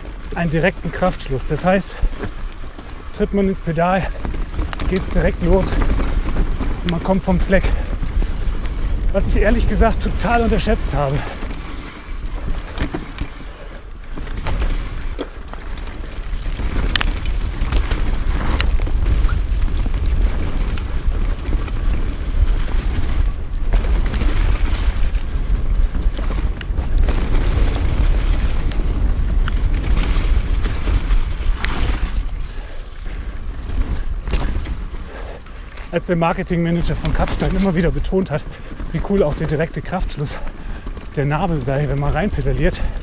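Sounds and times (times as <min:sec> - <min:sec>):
bike tyres on dirt trail: 0:00.0 - 0:43.0
wind rumble on microphone: 0:00.0 - 0:43.0.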